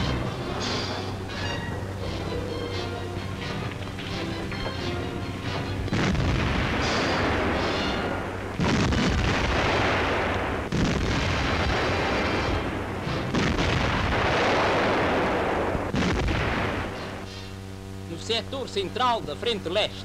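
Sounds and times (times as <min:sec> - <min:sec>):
artillery gun blasts: 0:00.0 - 0:02.0, 0:05.4 - 0:17.6.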